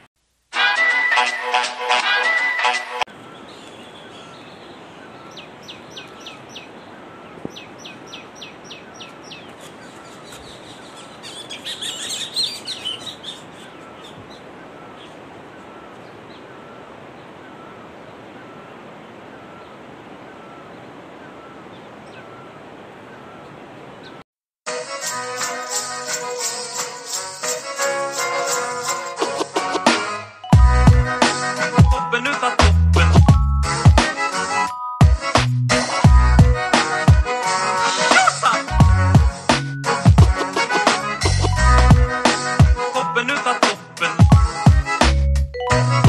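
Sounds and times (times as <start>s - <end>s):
steady outdoor hiss: 0.0s - 46.0s
wild birds calling: 3.1s - 24.2s, 36.4s - 39.0s.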